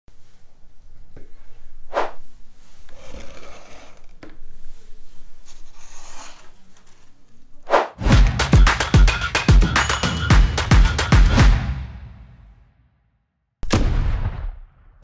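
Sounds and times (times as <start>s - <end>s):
whoosh: 1.9s - 2.2s
electronic music with heavy beat: 8.0s - 12.3s.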